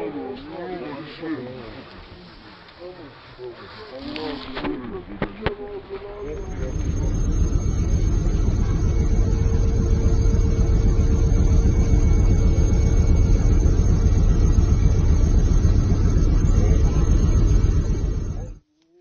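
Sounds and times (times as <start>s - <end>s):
helicopter engine and rotor rumble: 6.0s - 18.6s
faint steady tone: 6.1s - 18.6s.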